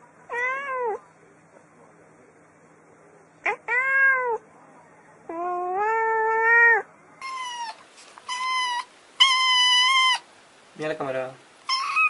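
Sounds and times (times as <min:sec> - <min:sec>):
cat meowing: 0:00.3 - 0:01.0, 0:03.4 - 0:04.4, 0:05.3 - 0:10.2, 0:11.7 - 0:12.0
kitten meowing: 0:05.3 - 0:10.2, 0:11.7 - 0:12.0.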